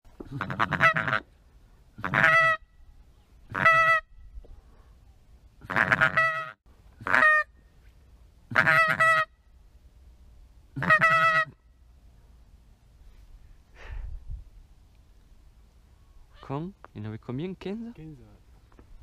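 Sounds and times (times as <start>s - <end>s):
nasal quacking calls: 0.2s - 1.3s, 2.0s - 2.6s, 3.5s - 4.1s, 5.6s - 7.5s, 8.5s - 9.3s, 10.8s - 11.6s.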